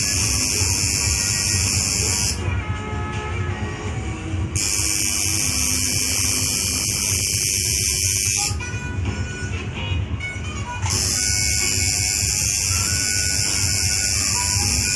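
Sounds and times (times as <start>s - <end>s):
tattoo machine buzzing: 0.0s - 2.4s, 4.6s - 8.6s, 10.9s - 14.9s
background music: 0.0s - 14.9s.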